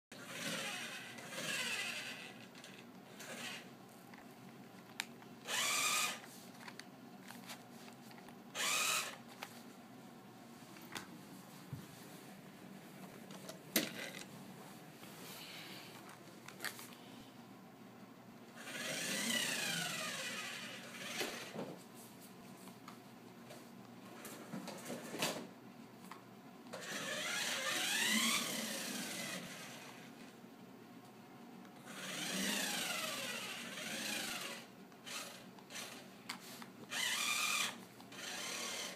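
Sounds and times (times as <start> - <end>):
toy car electric motor whirring: 0.1 - 3.7, 5.4 - 6.8, 8.5 - 9.3, 18.6 - 21.6, 26.7 - 30.1, 31.8 - 36.1, 36.9 - 38.9.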